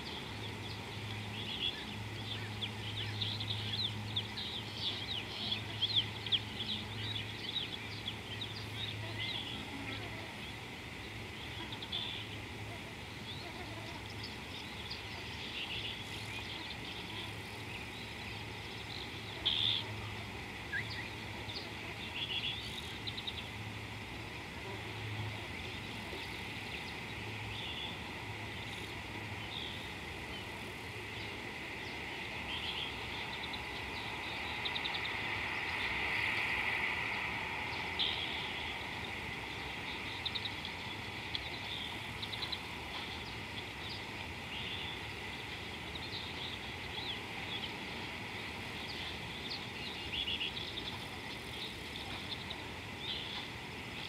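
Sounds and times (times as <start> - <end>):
background hiss: 0.0 - 54.0
bird chirps and calls: 11.4 - 23.6.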